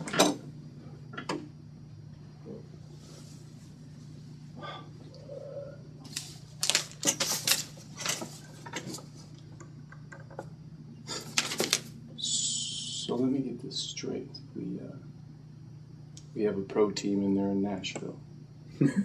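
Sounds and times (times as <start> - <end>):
newspaper pages rustling: 6.1 - 8.4, 11.2 - 12.0.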